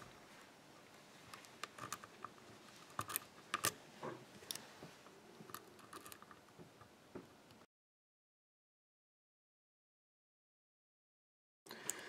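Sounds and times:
lock pick clicking and scraping: 1.3s - 3.8s, 4.4s - 4.7s, 5.4s - 6.9s.

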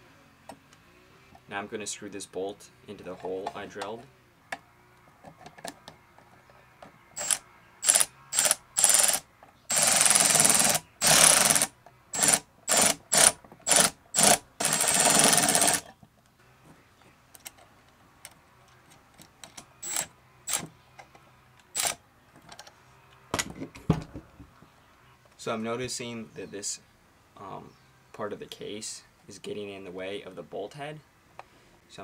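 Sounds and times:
electric screwdriver whirring: 7.2s - 15.8s, 19.8s - 20.7s, 21.7s - 22.0s.

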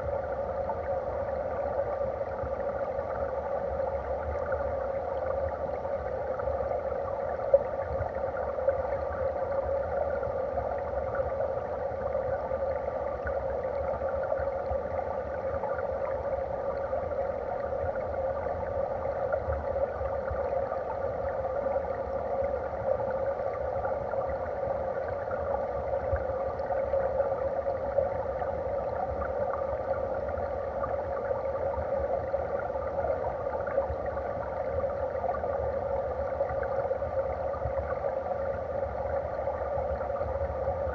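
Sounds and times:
stream water heard underwater: 0.0s - 40.9s.

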